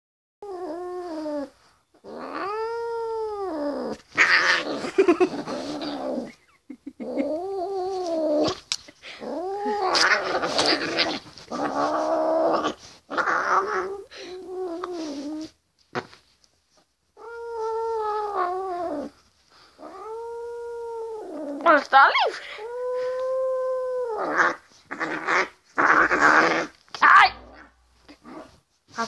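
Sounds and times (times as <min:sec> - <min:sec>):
cat yowling: 0:27.0 - 0:27.6.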